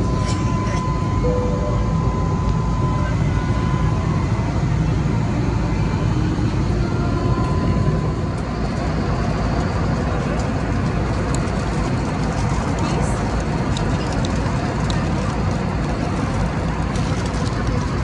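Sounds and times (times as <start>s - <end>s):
jet cabin engine rumble: 0.0s - 18.0s.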